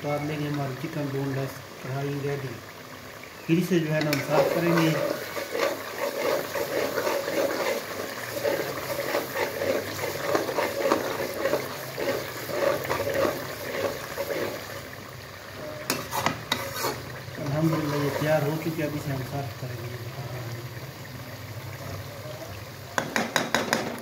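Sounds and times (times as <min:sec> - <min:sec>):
bubbling gravy squelching: 0:00.0 - 0:23.7
frying crackling: 0:00.0 - 0:24.0
metal spatula scraping pan: 0:03.9 - 0:15.0, 0:15.8 - 0:18.9
sharp knocks: 0:23.0 - 0:24.0.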